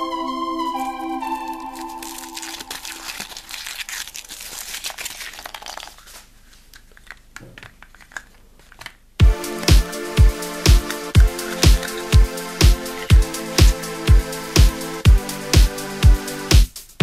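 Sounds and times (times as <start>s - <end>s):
foil wrapper crinkling and tearing: 1.4s - 9.1s.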